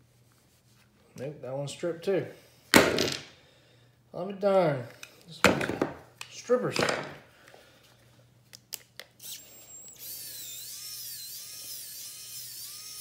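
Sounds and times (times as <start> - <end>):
electric screwdriver whining: 9.2 - 13.0.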